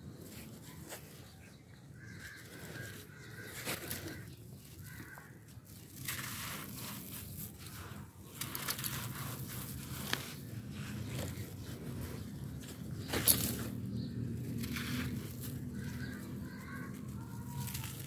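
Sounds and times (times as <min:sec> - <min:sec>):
sand and gravel crunching: 0:00.1 - 0:18.0
sand pouring through fingers: 0:05.7 - 0:12.4.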